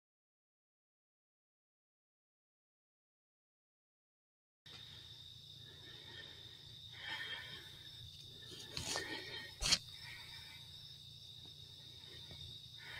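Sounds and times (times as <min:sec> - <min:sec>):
insects chirring: 0:04.7 - 0:12.9
faint rustles: 0:05.7 - 0:10.6.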